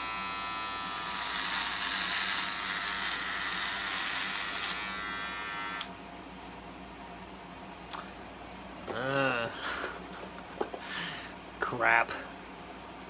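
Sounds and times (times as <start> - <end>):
electric razor buzzing: 0.0 - 5.9.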